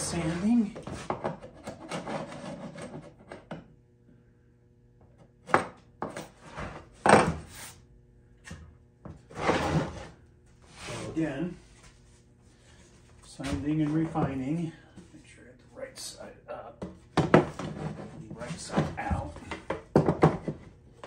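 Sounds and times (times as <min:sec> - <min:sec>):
metal scraper scraping wood: 0:00.2 - 0:03.4, 0:09.3 - 0:10.2.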